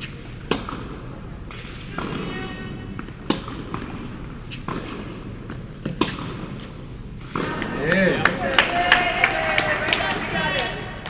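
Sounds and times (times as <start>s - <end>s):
tennis ball struck by racket: 0.0s - 2.4s, 3.0s - 8.1s.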